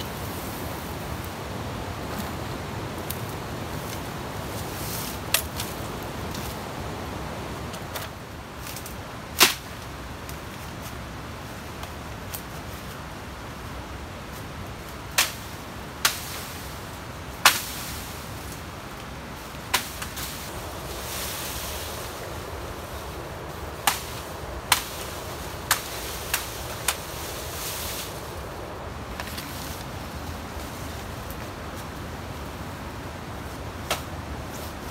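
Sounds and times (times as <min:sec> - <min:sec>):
steady hiss: 0:00.0 - 0:34.9
dry bamboo snapping and cracking: 0:05.1 - 0:06.6, 0:07.9 - 0:10.4, 0:15.0 - 0:16.5, 0:17.4 - 0:20.9, 0:23.6 - 0:28.4.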